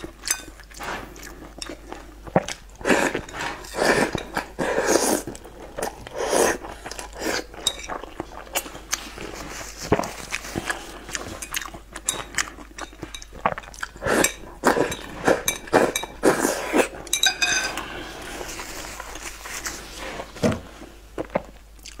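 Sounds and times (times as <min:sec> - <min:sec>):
chewing and slurping: 0:00.0 - 0:22.0
chopsticks tapping ceramic bowl: 0:17.1 - 0:17.7.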